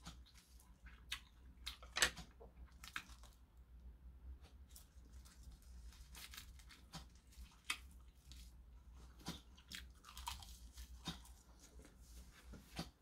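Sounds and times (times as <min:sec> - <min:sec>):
chewing crunchy seaweed: 0:04.7 - 0:12.0.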